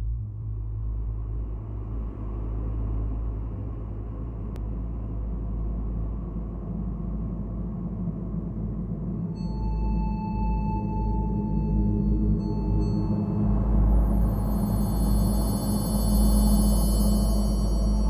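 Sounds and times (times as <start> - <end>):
low rumbling drone: 0.0 - 18.0.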